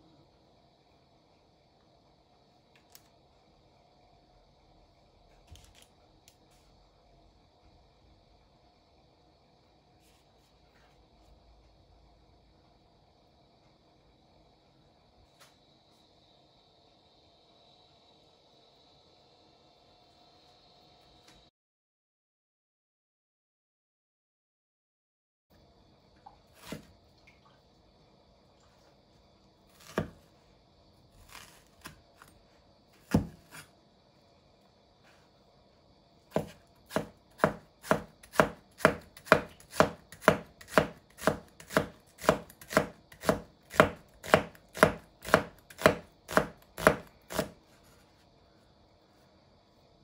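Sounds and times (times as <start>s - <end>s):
knife slicing onion: 26.6s - 26.9s, 29.7s - 30.2s, 31.1s - 32.3s, 33.0s - 33.7s, 36.3s - 47.6s.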